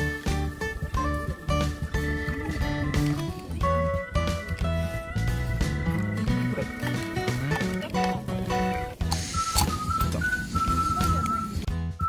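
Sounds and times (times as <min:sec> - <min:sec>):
whistled melody with light rhythm: 0:00.0 - 0:12.0.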